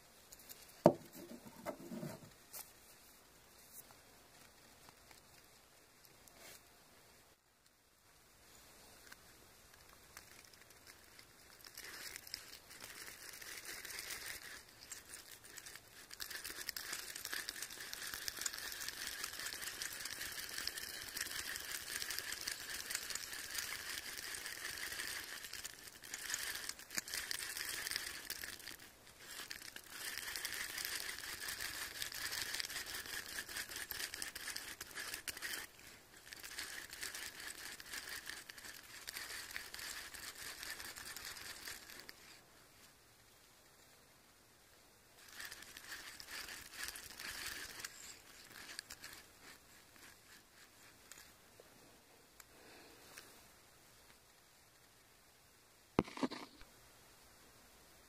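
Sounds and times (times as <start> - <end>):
fidget spinner whirring: 0.3 - 2.4, 9.7 - 42.4, 45.2 - 51.4.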